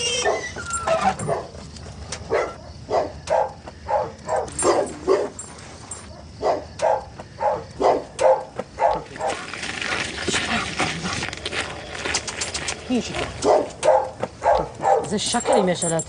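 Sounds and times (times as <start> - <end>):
dog barking: 1.2 - 1.5, 2.3 - 5.4, 6.4 - 9.4, 13.4 - 15.7.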